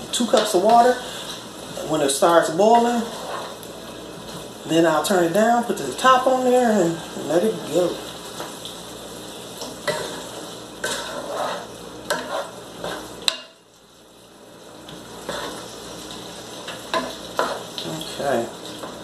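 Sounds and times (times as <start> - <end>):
vegetables sizzling in a frying pan: 0.0 - 19.0
wooden spatula scraping a pan: 2.6 - 4.5, 9.8 - 13.2, 15.2 - 15.8, 16.7 - 17.8.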